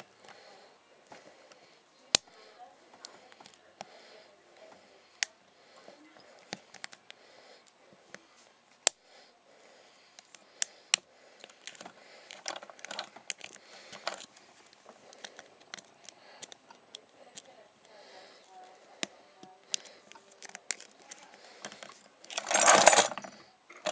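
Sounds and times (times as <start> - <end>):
metallic scraping and rattling: 22.2 - 23.9.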